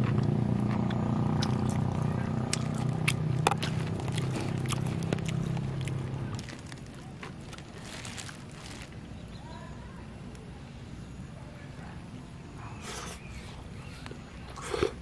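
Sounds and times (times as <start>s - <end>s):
plastic bag crinkling: 2.6s - 9.1s.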